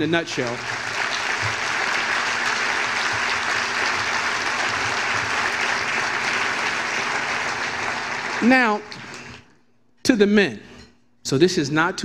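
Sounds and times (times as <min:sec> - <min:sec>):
audience applauding: 0:00.0 - 0:09.4.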